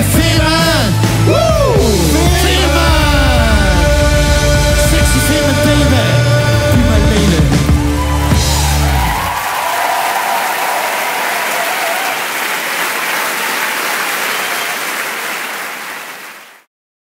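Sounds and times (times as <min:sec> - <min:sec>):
audience applauding: 0:06.2 - 0:16.7.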